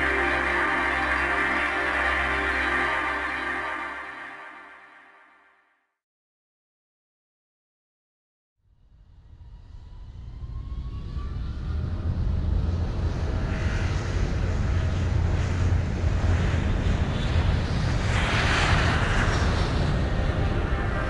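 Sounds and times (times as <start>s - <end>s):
faint rising whistles: 9.1s - 11.9s.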